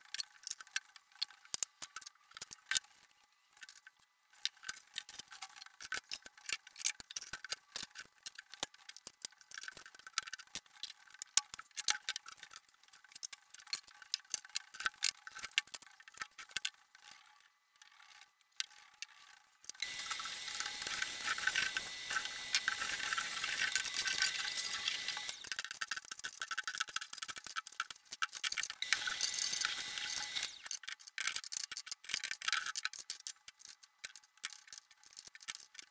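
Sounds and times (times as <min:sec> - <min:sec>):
small objects clicking and clattering: 0:00.0 - 0:35.9
vacuum cleaner running: 0:19.8 - 0:25.4, 0:28.8 - 0:30.7.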